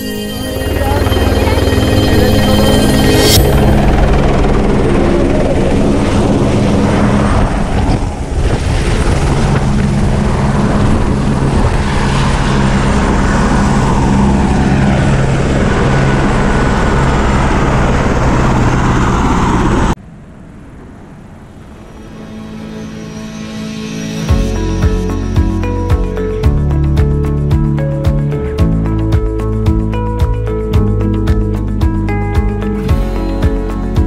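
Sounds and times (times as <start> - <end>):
helicopter engine and rotor: 0.0 - 20.0.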